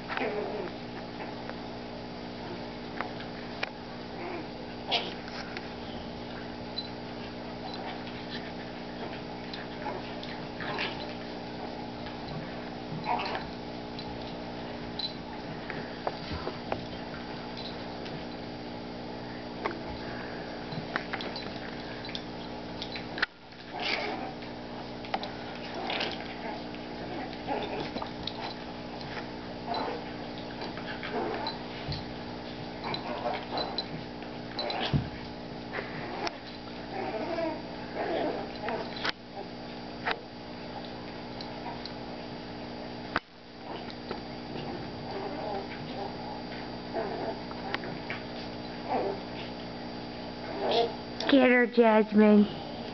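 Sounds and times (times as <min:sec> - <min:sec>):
dogs playing vocalizing: 0:00.0 - 0:51.3
steady hum: 0:00.0 - 0:52.9
paws scuffling: 0:04.6 - 0:18.6.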